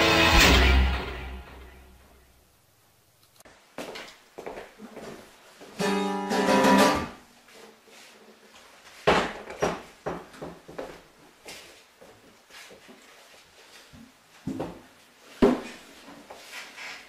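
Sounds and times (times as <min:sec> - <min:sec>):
acoustic guitar chord ringing: 0:00.0 - 0:02.2, 0:05.8 - 0:07.2.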